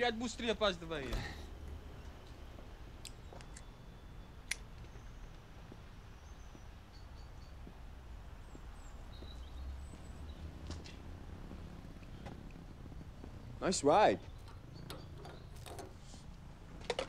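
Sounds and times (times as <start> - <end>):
faint bird chirps: 3.1 - 10.7, 11.5 - 16.6.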